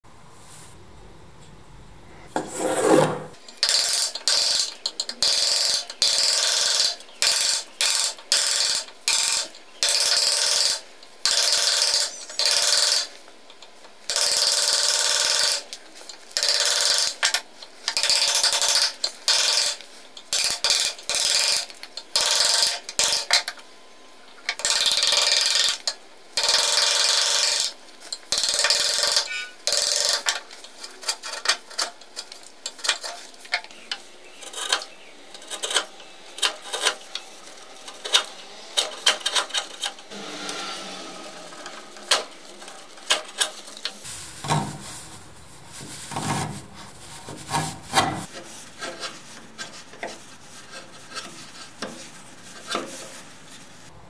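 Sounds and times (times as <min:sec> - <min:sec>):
chisel scraping cuts: 0:02.4 - 0:10.3, 0:28.4 - 0:44.1.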